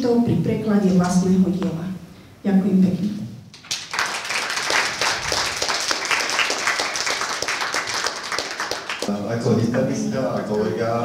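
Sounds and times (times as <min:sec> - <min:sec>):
audience applauding: 0:03.6 - 0:09.4.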